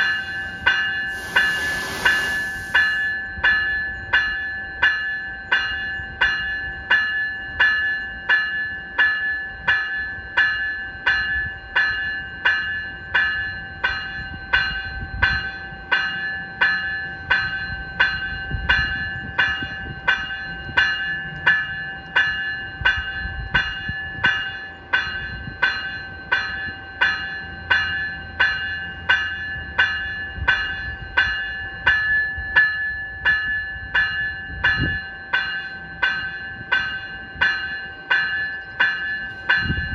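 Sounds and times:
electronic bell ringing: 0.0 - 6.0.

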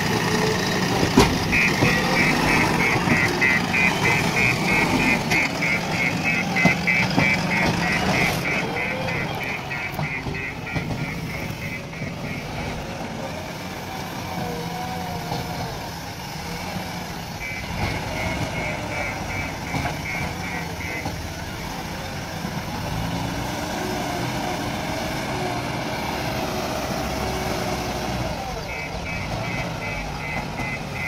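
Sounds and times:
diesel engine running: 0.0 - 31.0
reversing alarm beeps: 1.4 - 12.8, 17.4 - 21.7, 28.6 - 31.0.

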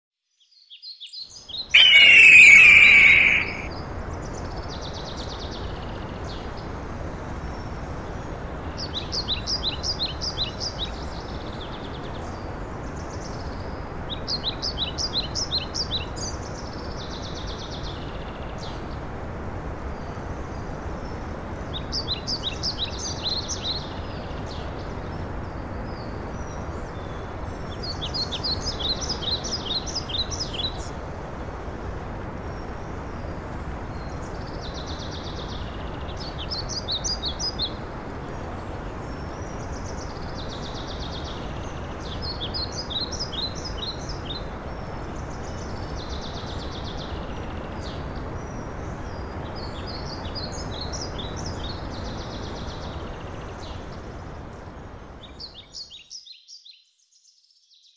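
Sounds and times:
songbird singing trilled phrases: 0.6 - 3.7.

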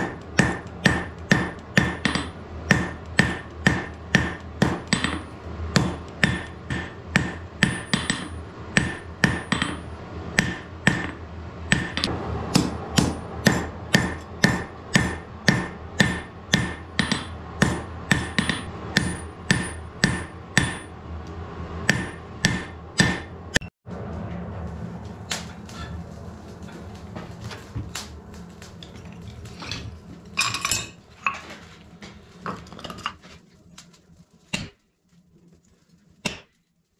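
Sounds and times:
hammer striking iron on anvil: 0.0 - 20.9, 21.8 - 23.7, 36.2 - 36.5
scattered workshop sounds: 0.0 - 36.9.

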